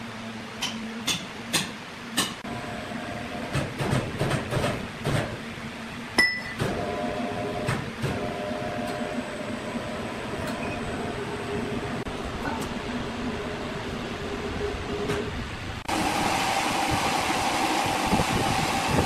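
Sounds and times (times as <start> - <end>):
machinery knocks and clatter: 3.4 - 5.4
machine hum with held tone: 5.7 - 19.0.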